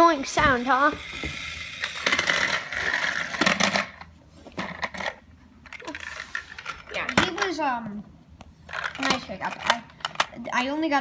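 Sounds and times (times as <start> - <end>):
toy car rattling on wooden floor: 0.4 - 4.0.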